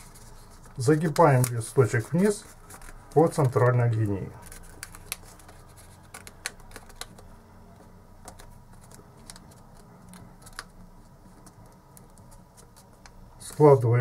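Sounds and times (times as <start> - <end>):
paper rustling: 0.0 - 13.9
paper clicks and taps: 4.4 - 13.2.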